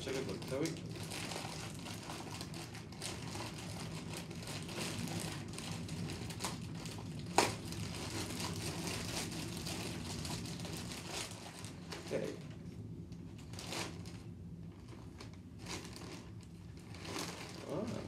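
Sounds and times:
plastic bag crinkling: 0:00.0 - 0:12.6, 0:13.3 - 0:18.0
plastic bag snap: 0:07.3 - 0:07.8.

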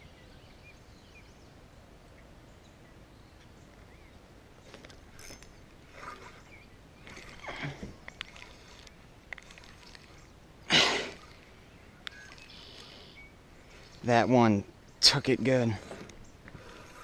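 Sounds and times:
water splashing at a dock: 0:05.1 - 0:17.0.

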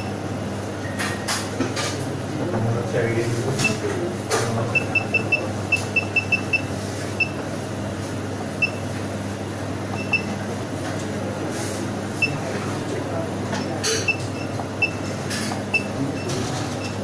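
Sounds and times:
steady low hum: 0:00.0 - 0:17.0
short high keypad beeps: 0:04.7 - 0:07.4, 0:08.6 - 0:08.9, 0:09.9 - 0:10.3.

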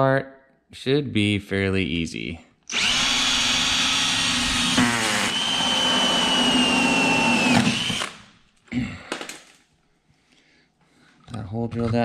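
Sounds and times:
cordless drill boring a hole: 0:02.7 - 0:08.4.

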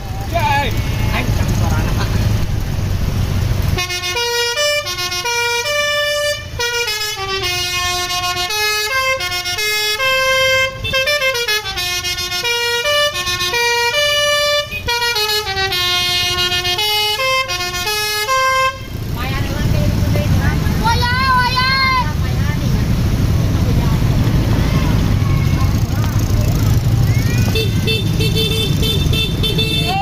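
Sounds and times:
musical bus horn playing a tune: 0:03.7 - 0:19.1, 0:27.5 - 0:30.0.

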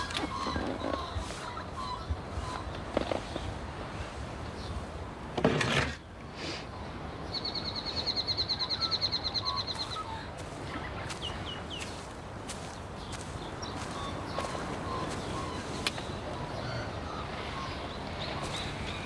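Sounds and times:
bird trilling: 0:00.0 - 0:03.4, 0:08.5 - 0:15.9
bird chirps: 0:00.0 - 0:03.5, 0:07.3 - 0:19.0.

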